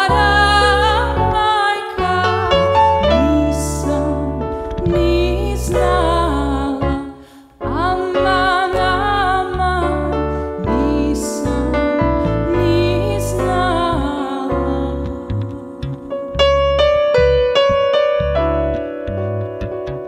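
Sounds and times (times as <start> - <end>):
woman singing folk song: 0.0 - 16.2
piano: 0.0 - 20.0
plucked double bass: 0.0 - 20.0.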